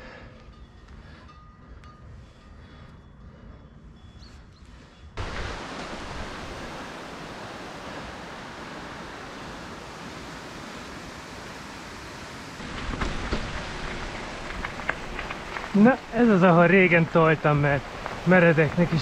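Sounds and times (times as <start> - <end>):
wind on microphone: 5.1 - 16.1
tyres rolling over trail: 5.2 - 19.0
knocks over rough ground: 12.6 - 19.0.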